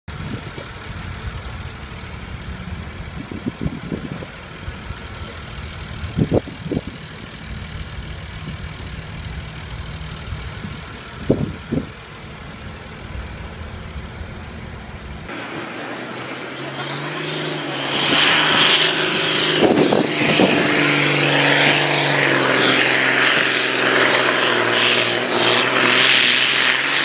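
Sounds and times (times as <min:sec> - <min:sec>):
diesel tractor engine idling: 0:00.1 - 0:15.3
engine pulses: 0:00.1 - 0:27.0.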